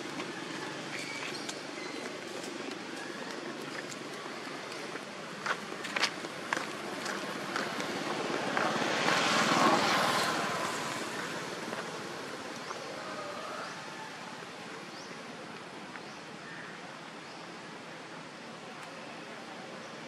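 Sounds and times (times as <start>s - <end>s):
vehicle passing by: 6.6s - 13.9s.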